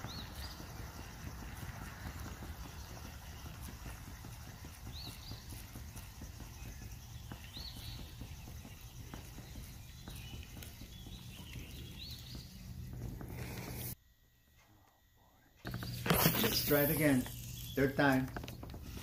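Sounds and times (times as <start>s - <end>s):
high bird chirps: 4.9s - 14.0s, 15.7s - 19.0s.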